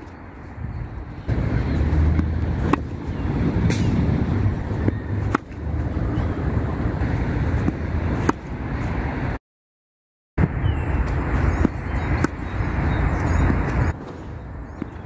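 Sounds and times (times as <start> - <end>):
steady low rumble: 0.5 - 9.4
tennis racket hitting balls: 1.3 - 9.0, 11.0 - 15.0.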